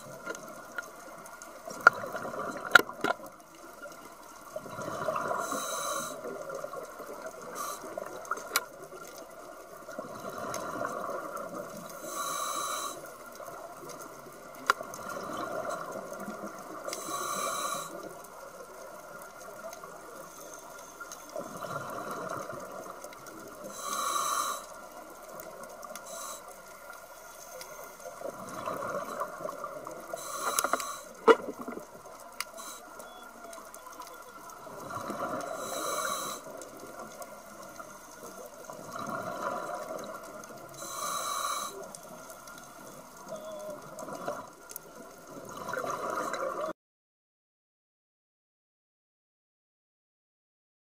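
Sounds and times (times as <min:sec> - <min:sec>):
regulator inhalation hiss: 0:05.3 - 0:06.3, 0:07.4 - 0:08.1, 0:11.9 - 0:13.2, 0:16.9 - 0:18.1, 0:23.6 - 0:24.8, 0:26.0 - 0:26.7, 0:30.1 - 0:31.2, 0:32.5 - 0:33.0, 0:35.5 - 0:36.6, 0:40.8 - 0:41.9
exhaled bubbles rumbling: 0:31.2 - 0:32.2, 0:38.6 - 0:40.7.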